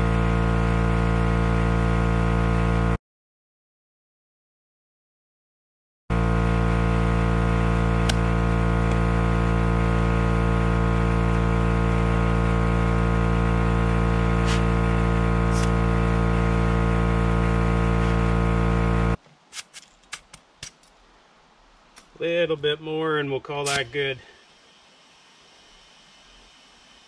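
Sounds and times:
air compressor running: 0.0 - 3.0, 6.1 - 19.7, 23.5 - 27.0
short air hisses: 14.4 - 14.8.

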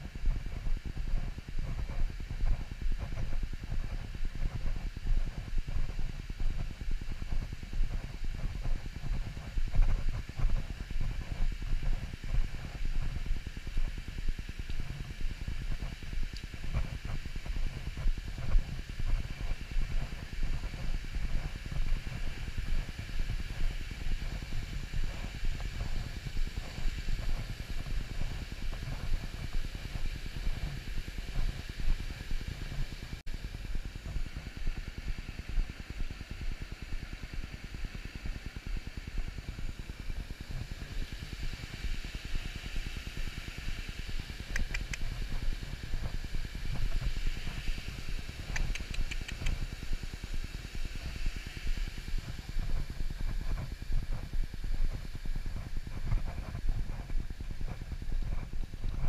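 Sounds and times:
wind rumbling on microphone: 0.0 - 59.0
quick high ticks: 44.5 - 45.2, 48.4 - 49.7.

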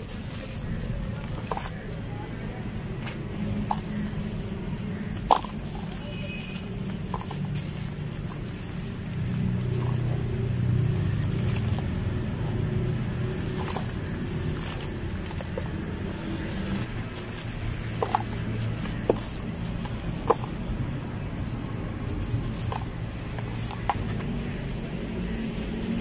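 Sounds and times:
wet sand crunching: 0.0 - 26.0.

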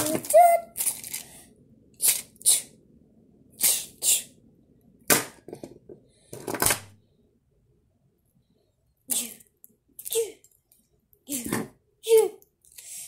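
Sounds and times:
child making hissing mouth sounds: 2.0 - 2.8, 3.6 - 4.4, 9.1 - 9.4.

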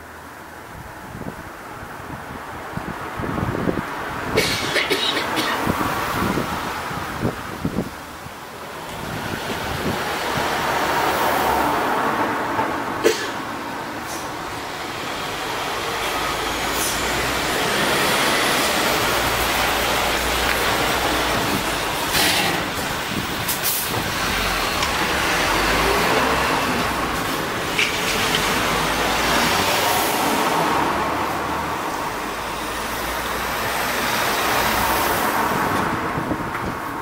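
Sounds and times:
vehicles driving over level crossing: 8.4 - 36.5.

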